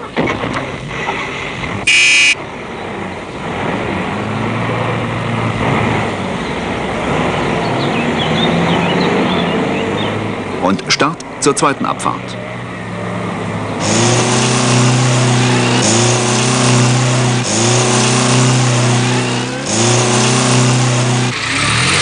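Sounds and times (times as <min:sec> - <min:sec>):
car engines idling: 0:00.0 - 0:22.0
car horn toot: 0:01.8 - 0:02.4.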